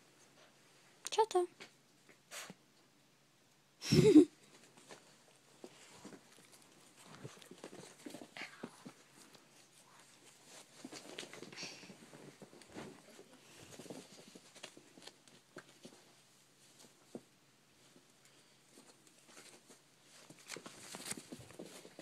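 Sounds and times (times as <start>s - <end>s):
dogs scuffling on bedding: 4.5s - 18.0s, 18.7s - 22.0s.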